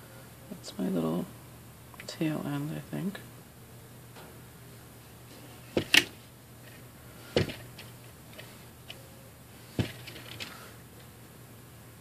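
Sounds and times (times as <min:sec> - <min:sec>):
plastic clicks and knocks: 0:05.8 - 0:06.1, 0:07.4 - 0:07.9, 0:09.8 - 0:10.5.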